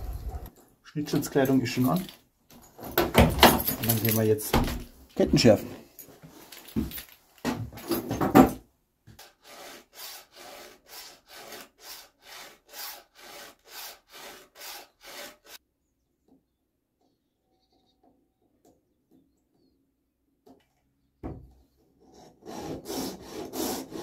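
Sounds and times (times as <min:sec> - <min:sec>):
file rasping on chain: 0:09.2 - 0:15.6, 0:22.1 - 0:24.0.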